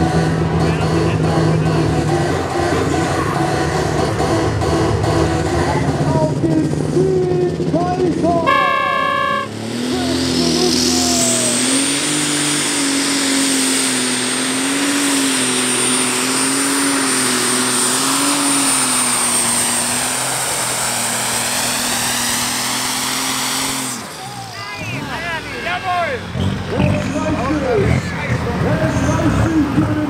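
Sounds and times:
tractor engine running flat out: 0.0s - 30.0s
turbocharger whine: 8.4s - 22.4s.

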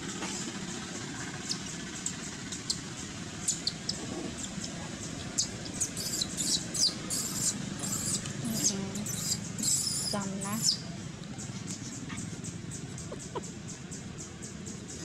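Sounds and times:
baby monkey squealing: 3.4s - 4.6s, 5.2s - 10.8s.

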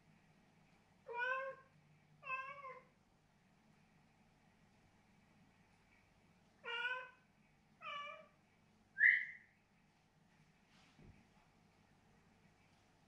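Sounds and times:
cat meowing: 1.1s - 2.9s, 6.6s - 7.2s, 7.8s - 8.3s.

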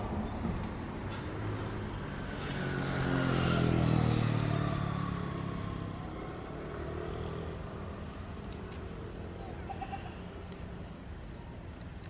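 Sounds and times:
vehicle engine passing by: 0.0s - 10.9s.

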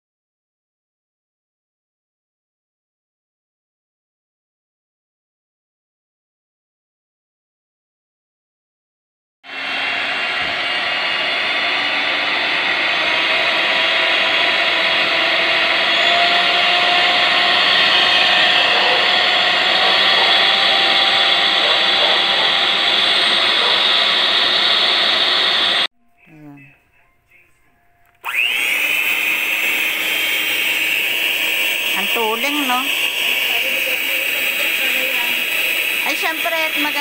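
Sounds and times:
electric hand mixer whirring: 9.5s - 25.9s, 28.2s - 37.0s.

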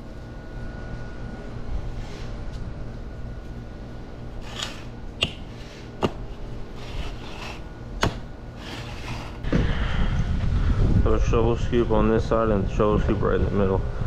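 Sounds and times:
sand scraping: 4.4s - 7.7s, 8.5s - 9.5s.

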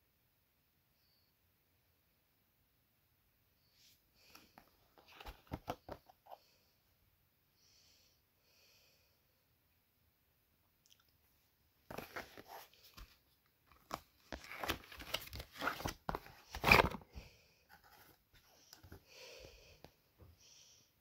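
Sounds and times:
cardboard rustling and scraping: 4.9s - 6.4s, 11.9s - 17.1s, 17.7s - 19.0s.

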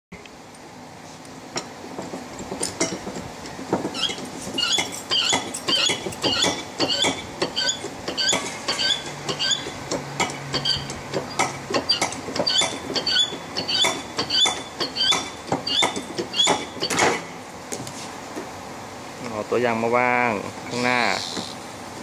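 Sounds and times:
hydraulic cutter squeaky clicks: 3.9s - 9.8s, 10.5s - 17.1s.

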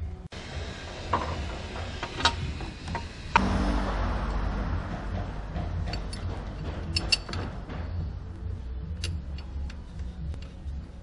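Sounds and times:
low workshop hum: 0.0s - 11.0s
metallic clicks and knocks: 4.8s - 8.2s.

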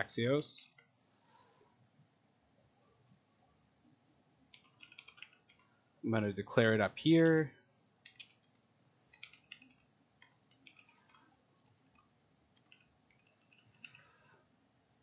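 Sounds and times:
keyboard typing clicks: 4.5s - 5.7s, 8.0s - 14.1s.

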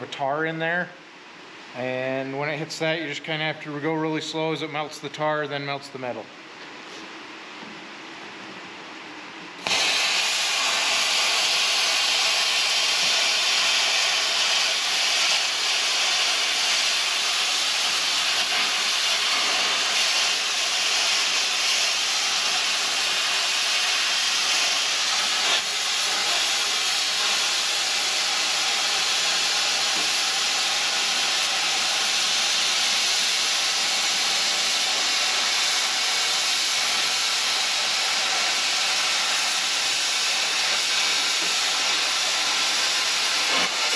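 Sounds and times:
plasma cutter arc hissing: 9.6s - 43.9s.

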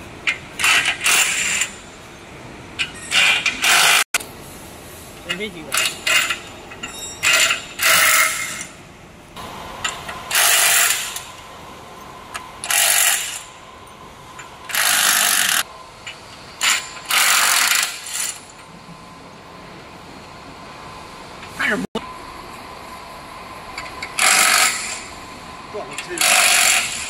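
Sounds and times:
harsh workshop tool bursts: 0.6s - 1.8s, 3.0s - 4.0s, 7.2s - 8.8s, 10.3s - 11.3s, 12.6s - 13.6s, 14.6s - 15.7s, 16.6s - 18.5s, 24.2s - 25.2s, 26.1s - 27.0s.

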